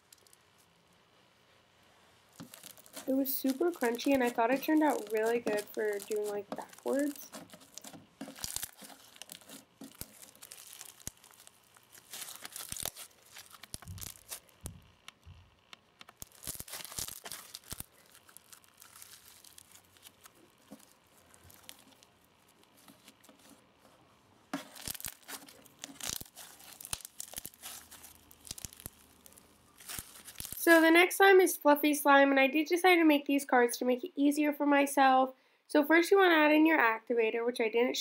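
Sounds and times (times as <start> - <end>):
foam slime crunching and popping: 2.3 - 14.8, 16.0 - 23.5, 24.6 - 30.8.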